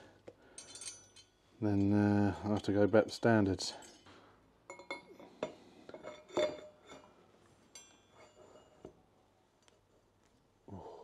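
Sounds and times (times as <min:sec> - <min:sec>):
metal clinks and taps: 0:00.2 - 0:01.4, 0:04.7 - 0:07.1, 0:07.7 - 0:09.0.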